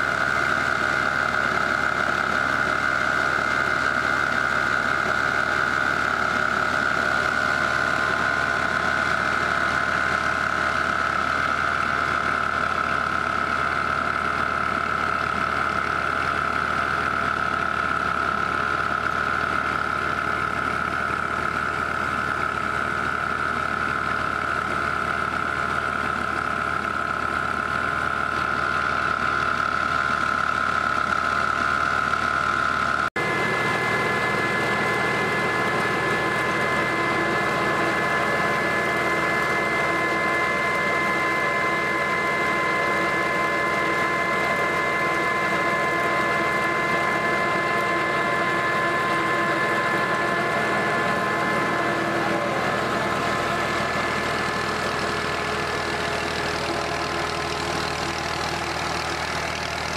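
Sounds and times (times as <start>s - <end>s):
tractor diesel engine running: 0.0s - 59.9s
high-pitched whine: 33.2s - 58.1s
flour mill grinding grain: 33.2s - 59.9s.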